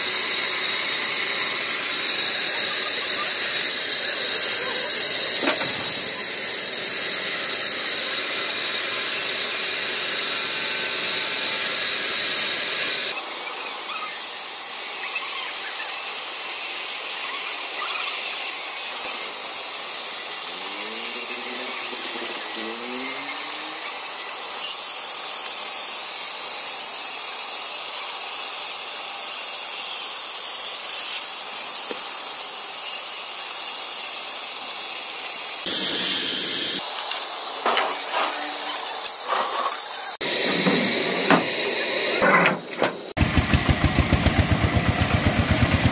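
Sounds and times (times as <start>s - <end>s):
band saw cutting through log: 0.0s - 45.9s.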